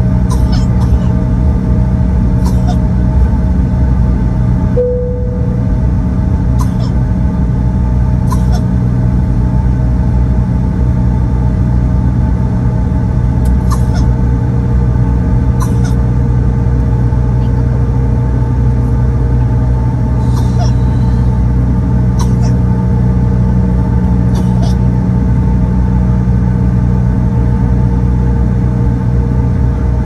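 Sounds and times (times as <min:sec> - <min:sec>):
jet engines low rumble: 0:00.0 - 0:30.0
steady whining tones: 0:04.8 - 0:08.2.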